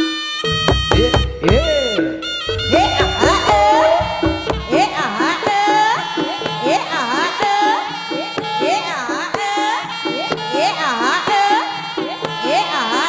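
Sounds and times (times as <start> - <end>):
sliding high melody: 0.4 - 5.3
drums beating: 0.5 - 7.7.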